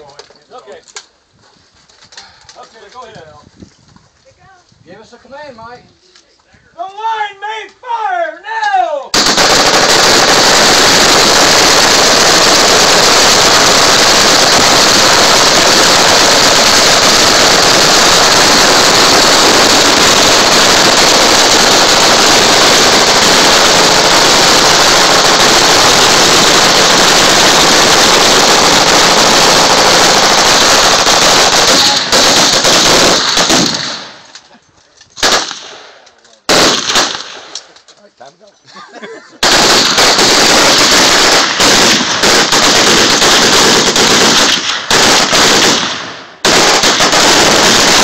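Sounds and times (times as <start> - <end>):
machine gun fire: 9.1 - 34.3, 35.2 - 37.6, 39.4 - 48.0.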